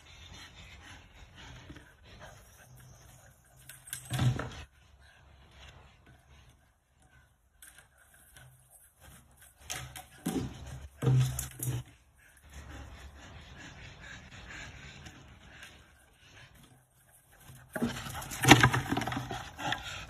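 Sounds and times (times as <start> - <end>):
plastic bucket knocking and scraping: 17.7 - 19.6.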